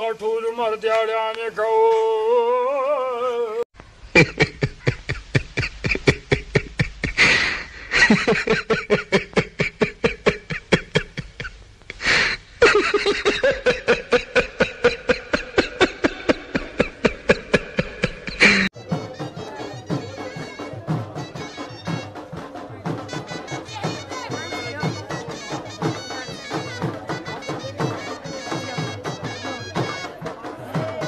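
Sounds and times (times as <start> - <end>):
man singing: 0.0 - 4.6
rhythmic laughter: 4.2 - 31.0.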